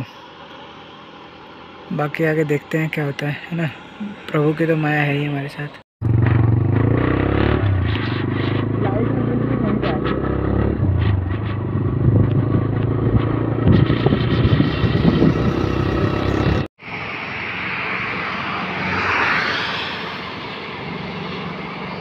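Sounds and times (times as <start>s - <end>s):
road hiss: 0.0s - 2.1s
motorcycle engine running: 6.0s - 16.7s.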